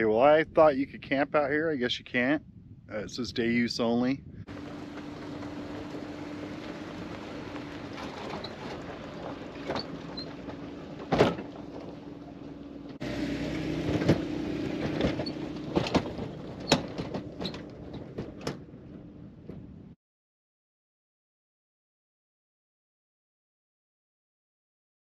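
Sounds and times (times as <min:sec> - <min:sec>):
low engine hum: 0:04.2 - 0:20.0
trailer rattling: 0:04.5 - 0:20.0.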